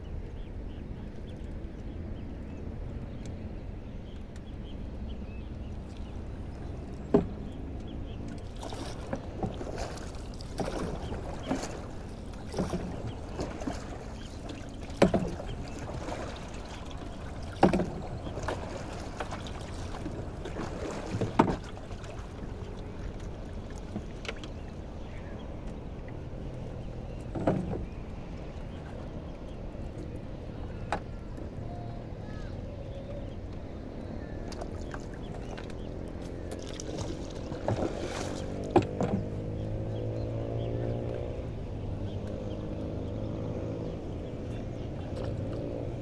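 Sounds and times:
water splashing and sloshing: 0:00.0 - 0:46.0
wood knocking on boat hull: 0:07.1 - 0:07.4, 0:21.0 - 0:21.8, 0:37.6 - 0:39.4.

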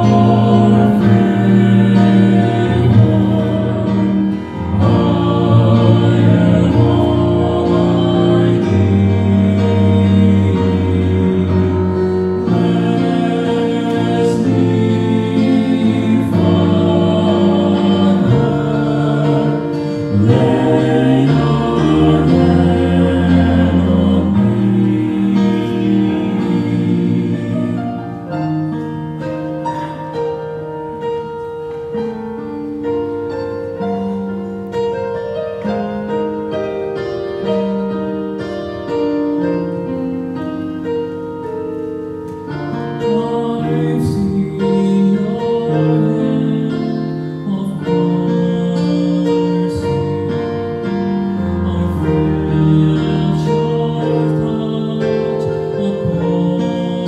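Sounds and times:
male vocal quartet singing gospel: 0:00.0 - 0:29.5, 0:42.6 - 0:57.0
instrumental accompaniment: 0:00.0 - 0:57.0.

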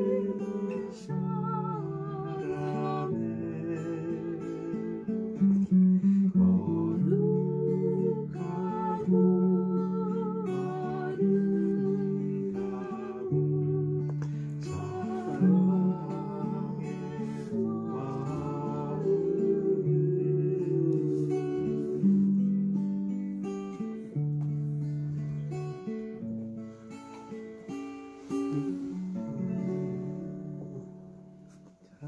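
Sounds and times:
wavering sung melody: 0:00.0 - 0:22.7.

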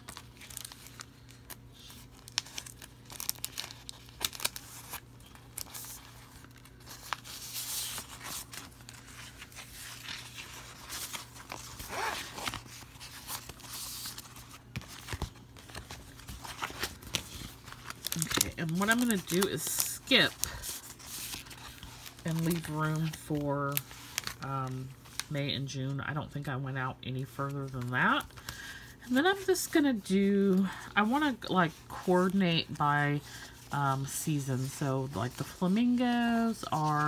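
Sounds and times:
sticker sheets rustling: 0:00.0 - 0:25.3
faint steady hum: 0:00.0 - 0:37.0.

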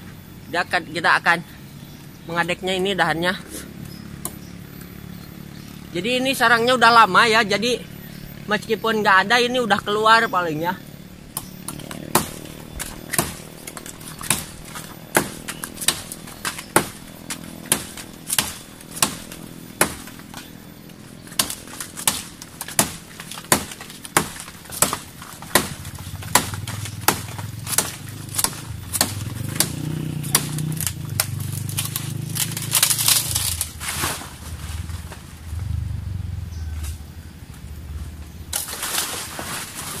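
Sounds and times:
machete chopping a branch: 0:03.5 - 0:04.5, 0:11.3 - 0:35.3, 0:38.5 - 0:40.0.

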